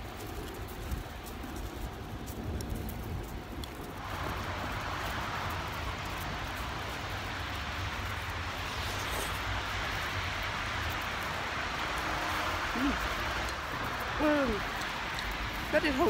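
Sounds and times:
car tyres hissing on road: 0:04.0 - 0:16.0.

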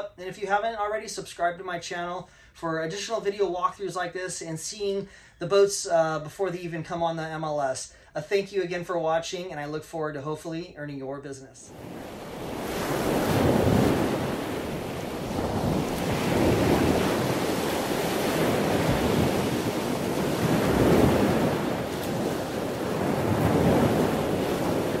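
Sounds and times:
ocean waves washing in: 0:11.7 - 0:25.0.

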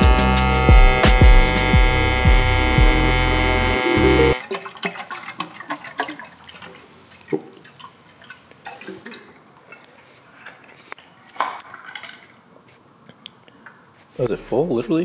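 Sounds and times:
liquid sloshing inside tank: 0:04.4 - 0:10.9.

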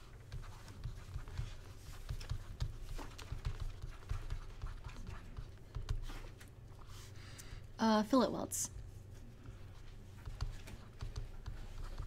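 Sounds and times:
low steady hum: 0:00.0 - 0:12.0
stylus tapping on tablet screen: 0:00.3 - 0:06.2, 0:10.2 - 0:12.0.

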